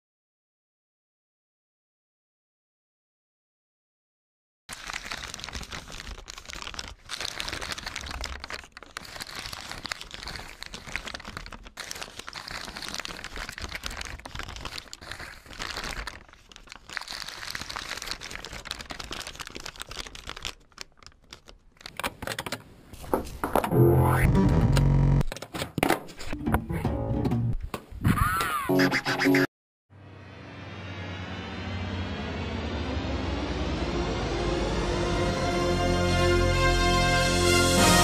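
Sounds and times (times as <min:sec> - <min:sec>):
paper crumpling: 0:04.7 - 0:23.7.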